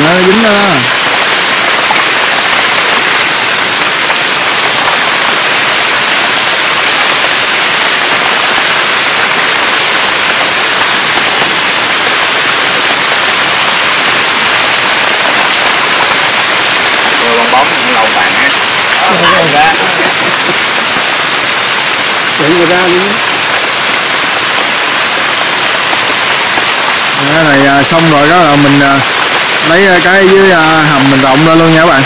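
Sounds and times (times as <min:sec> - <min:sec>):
steady rain falling: 0:00.0 - 0:32.0.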